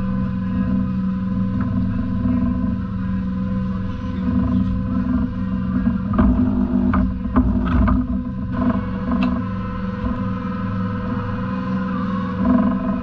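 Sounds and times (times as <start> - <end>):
boat engine running: 0.0 - 13.0
sharp knocks and rattles: 3.9 - 11.3.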